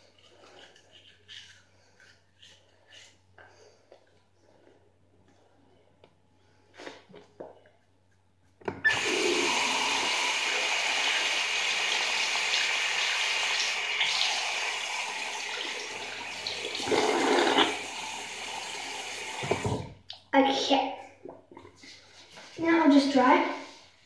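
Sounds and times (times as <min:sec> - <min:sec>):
tap water running into sink: 0:08.8 - 0:19.9.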